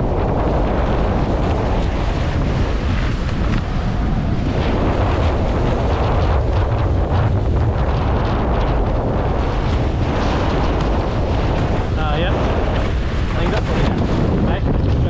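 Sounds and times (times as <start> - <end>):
water rushing along boat hulls: 0.0 - 15.0
wind buffeting microphone: 0.0 - 15.0.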